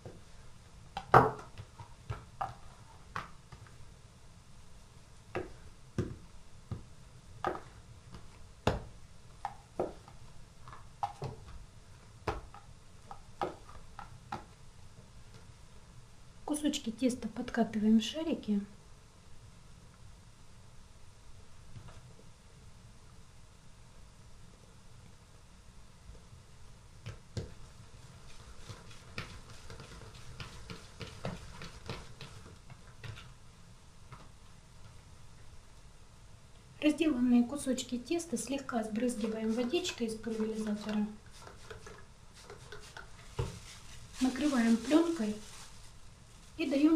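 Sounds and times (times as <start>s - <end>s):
low steady hum: 0.0s - 46.9s
dough tapping on table: 1.0s - 3.7s, 5.3s - 11.6s, 12.2s - 14.5s.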